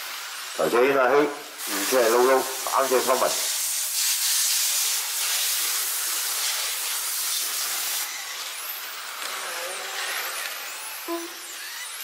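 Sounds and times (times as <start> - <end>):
electric motor whine: 5.6 - 12.0.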